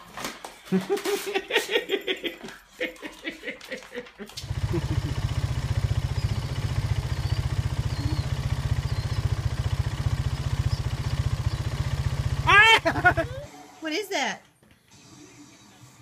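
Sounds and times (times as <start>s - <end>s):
laughter: 0.6s - 5.2s, 12.8s - 13.5s
engine rumble idling: 4.4s - 13.5s.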